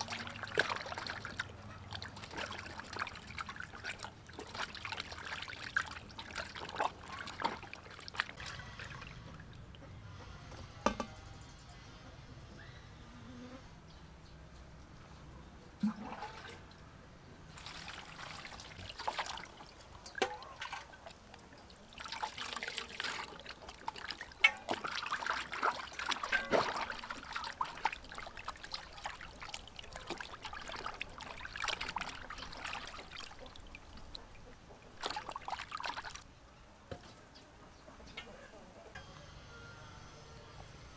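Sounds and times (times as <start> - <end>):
water sloshing and splashing: 0.0 - 9.9, 15.8 - 36.3.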